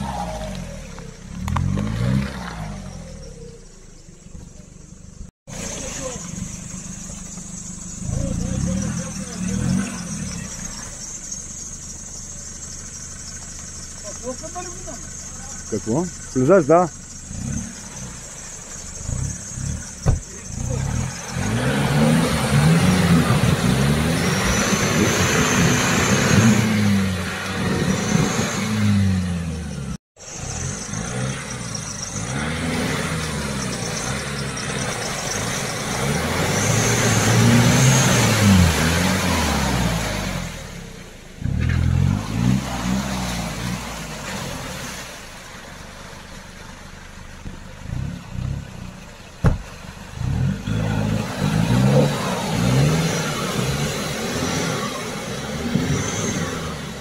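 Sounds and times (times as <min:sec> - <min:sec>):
diesel engine revving: 0:00.0 - 0:57.0
spinning tyres throwing mud: 0:00.0 - 0:57.0.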